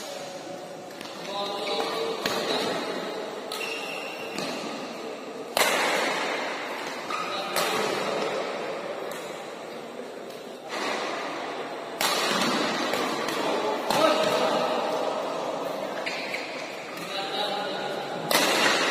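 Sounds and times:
background murmur: 0.0 - 18.9
rackets smacking shuttlecock: 3.4 - 4.7, 5.5 - 8.4, 11.9 - 14.4, 18.2 - 18.9.

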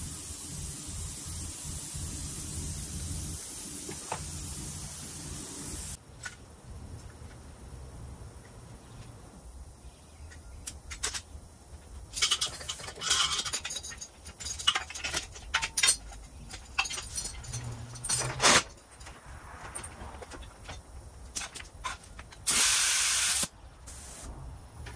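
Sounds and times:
metal hardware clinking: 12.0 - 19.2
short hiss: 22.4 - 24.3.

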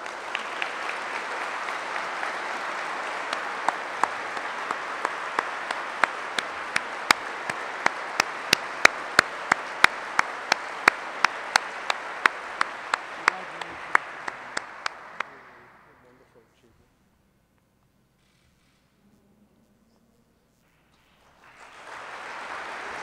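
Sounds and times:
close person clapping: 0.0 - 15.8, 21.0 - 23.0
audience applauding: 0.0 - 16.2, 21.0 - 23.0.

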